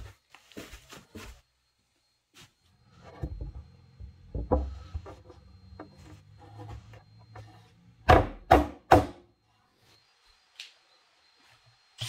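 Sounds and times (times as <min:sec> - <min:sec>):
wooden boards knocking and scraping: 0:04.3 - 0:09.2.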